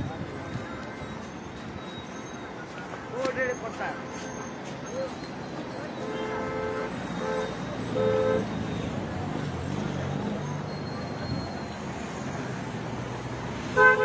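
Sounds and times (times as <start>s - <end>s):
two-tone vehicle horn tooting: 5.9s - 8.6s, 13.6s - 14.0s.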